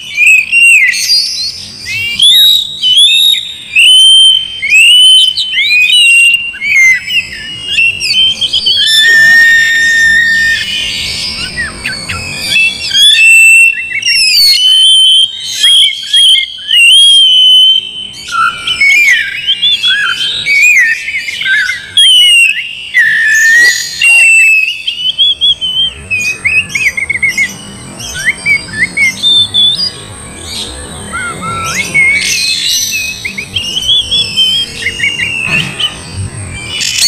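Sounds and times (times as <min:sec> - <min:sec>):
bird singing whistles and chatter: 0:00.0 - 0:37.0.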